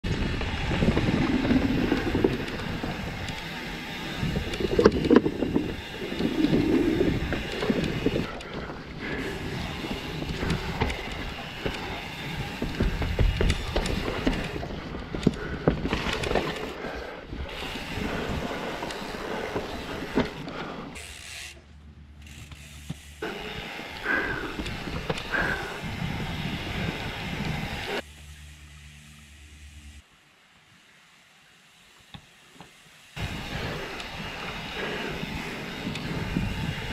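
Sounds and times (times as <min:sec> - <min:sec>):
wind on microphone: 0:00.0 - 0:03.4, 0:04.1 - 0:08.4, 0:24.5 - 0:28.0, 0:33.2 - 0:36.9
bike rattling: 0:00.0 - 0:30.0, 0:31.1 - 0:36.9
tyres rolling over dirt: 0:00.1 - 0:20.8.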